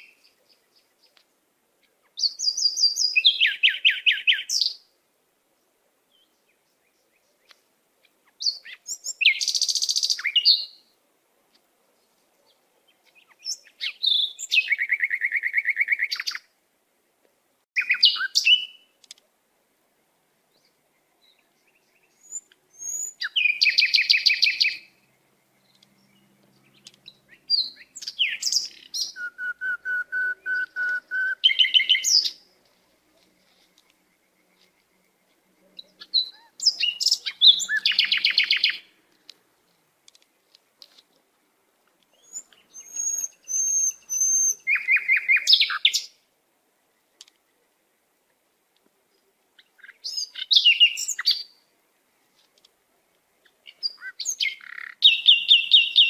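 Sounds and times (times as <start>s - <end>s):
songbird trilling: 21.3s - 24.9s, 25.6s - 32.4s, 35.7s - 38.9s, 42.1s - 46.1s, 49.6s - 51.5s, 53.4s - 56.0s.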